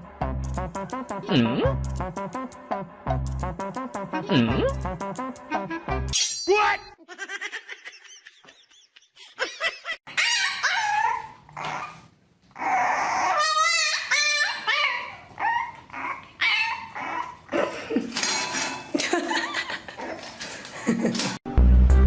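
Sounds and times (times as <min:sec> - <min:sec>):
puppy whining and yipping: 0:10.1 - 0:17.5.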